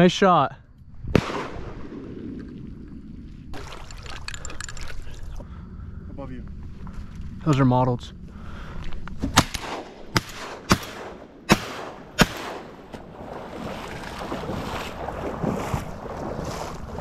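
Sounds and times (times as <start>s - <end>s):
shotgun blasts: 1.1s - 2.4s, 9.3s - 13.1s.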